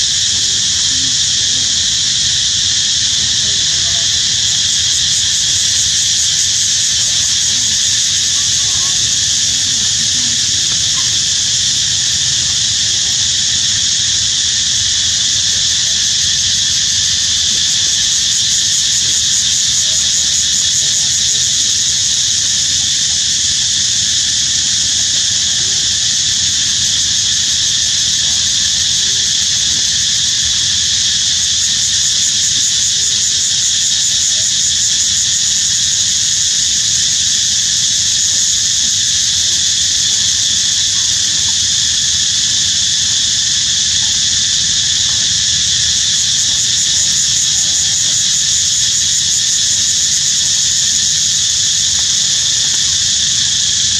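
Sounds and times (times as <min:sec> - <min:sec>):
insects droning: 0:00.0 - 0:53.9.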